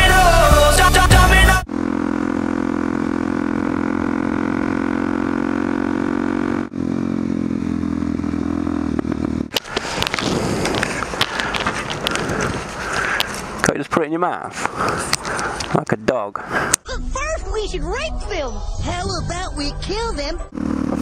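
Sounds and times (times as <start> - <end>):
motorcycle engine cruising: 0.1 - 15.8, 19.4 - 21.0
rustling: 9.6 - 13.6.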